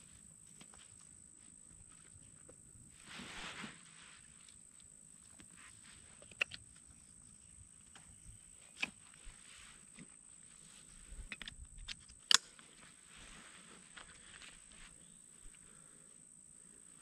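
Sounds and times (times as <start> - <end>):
insect drone: 0.0 - 17.0
sharp clicks: 11.3 - 12.6.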